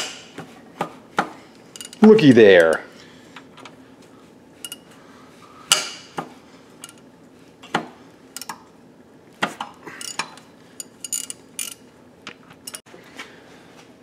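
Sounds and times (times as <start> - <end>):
wrench clinking on metal: 1.7 - 2.9, 6.8 - 7.0, 9.9 - 11.9, 12.6 - 12.8.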